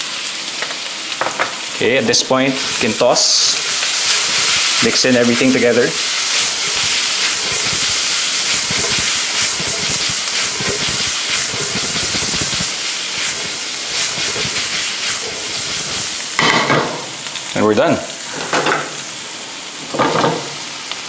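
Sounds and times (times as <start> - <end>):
food sizzling in frying pan: 0.0 - 21.0
food scraping and rattling in pan: 2.5 - 17.1.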